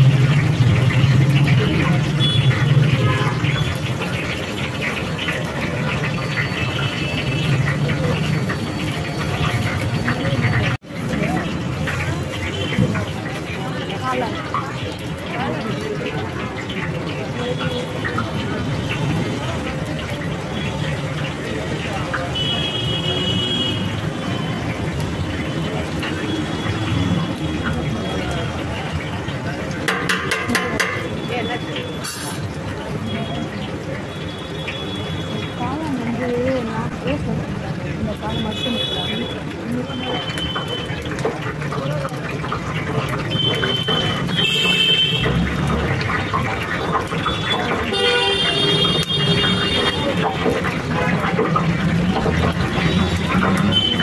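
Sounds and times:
oil bubbling in deep fryer: 0.0s - 54.0s
street noise: 0.0s - 54.0s
voices: 0.0s - 54.0s
vehicle horns honking: 2.2s - 3.6s, 22.3s - 23.9s, 43.3s - 45.3s, 47.2s - 50.1s.

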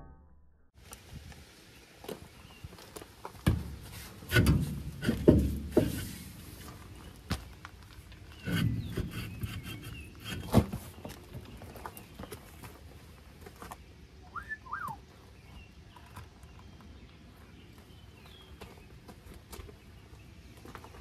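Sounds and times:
bird chirp: 8.2s - 12.8s, 13.7s - 21.0s
wheel scraping off hub: 8.3s - 11.1s.

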